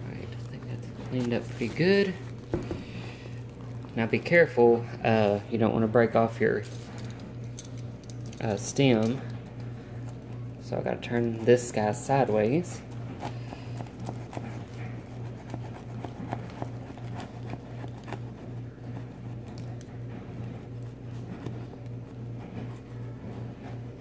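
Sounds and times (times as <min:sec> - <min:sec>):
steady low hum: 0:00.0 - 0:24.0
knife cutting hardened clay shell: 0:11.2 - 0:19.7.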